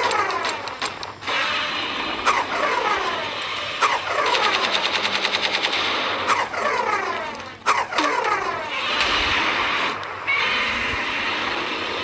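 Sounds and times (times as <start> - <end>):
machine-gun fire: 2.2 - 8.6.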